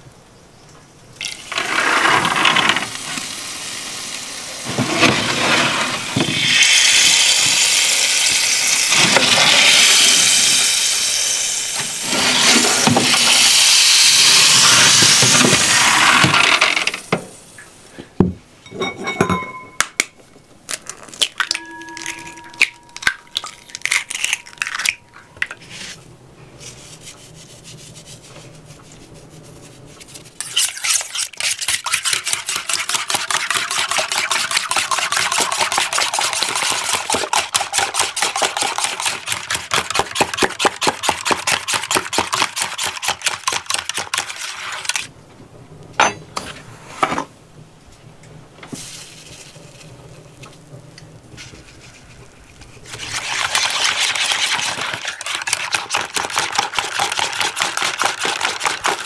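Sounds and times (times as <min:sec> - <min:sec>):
whisk beating batter in a bowl: 0:30.0 - 0:45.0, 0:52.9 - 0:59.0.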